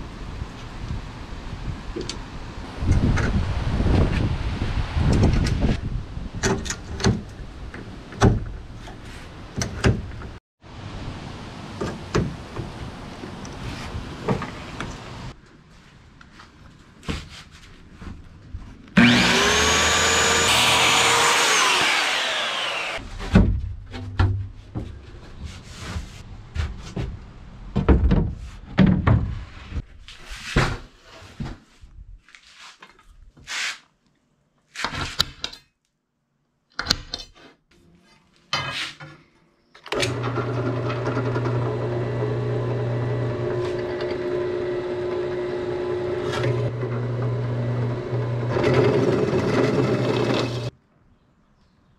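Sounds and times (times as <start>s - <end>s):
circular saw cutting plywood: 19.0s - 23.0s, 40.0s - 50.7s
drill press motor running: 19.0s - 23.0s, 40.0s - 50.7s.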